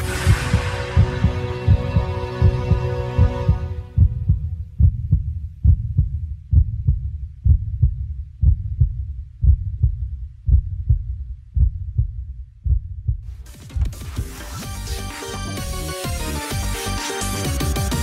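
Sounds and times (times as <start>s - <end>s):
background music: 0.0s - 4.5s, 13.5s - 18.0s
low heartbeat-like thumps: 0.0s - 14.3s.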